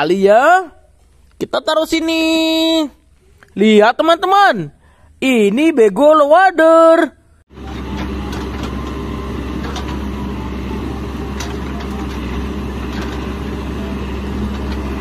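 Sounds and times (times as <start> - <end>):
diesel engine running: 7.5 - 15.0.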